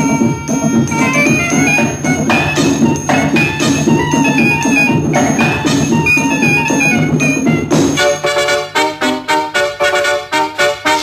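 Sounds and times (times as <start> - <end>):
high chiming notes: 0.0 - 8.4
steady percussion beat: 0.0 - 11.0.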